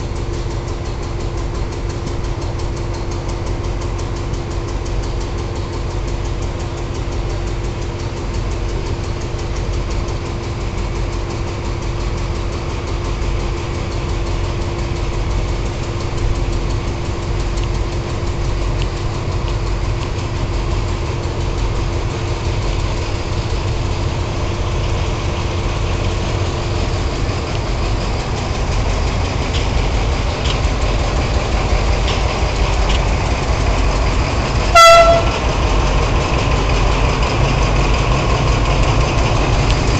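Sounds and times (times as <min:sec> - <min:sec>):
passenger train rumbling by: 0:00.0 - 0:39.9
train horn toot: 0:34.7 - 0:35.5.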